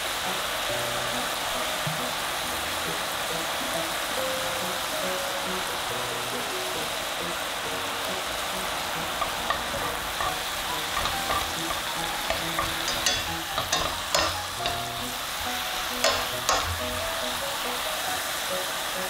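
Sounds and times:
food sizzling in a frying pan: 0:00.0 - 0:19.0
spatula scraping and knocking pan: 0:09.0 - 0:17.5.

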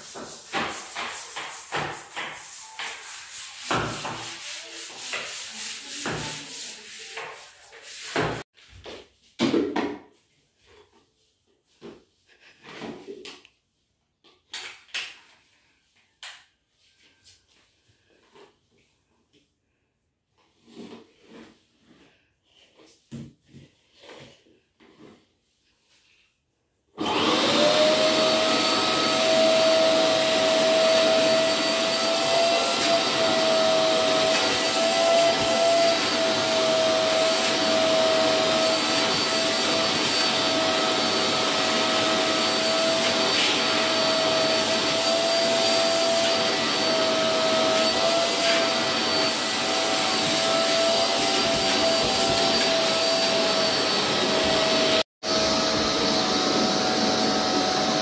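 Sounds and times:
vacuum cleaner whining: 0:27.0 - 0:58.0.

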